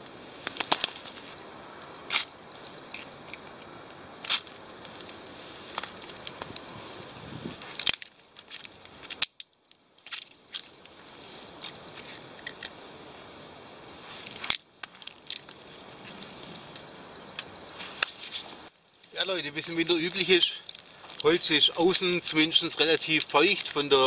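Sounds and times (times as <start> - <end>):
burning wood cracking and popping: 0.4 - 1.3, 2.9 - 6.8, 7.5 - 11.0, 14.2 - 24.0
sticks rustling: 4.2 - 12.7, 13.9 - 24.0.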